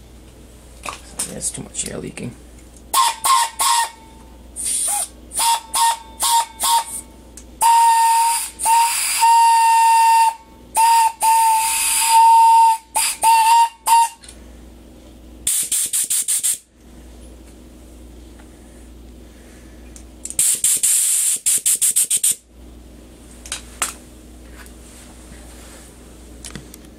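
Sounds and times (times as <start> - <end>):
air horn toots: 2.9 - 4.1, 5.3 - 7.0, 7.6 - 14.2
air hissing: 4.6 - 7.0, 7.6 - 9.5, 15.5 - 16.7, 20.4 - 22.4.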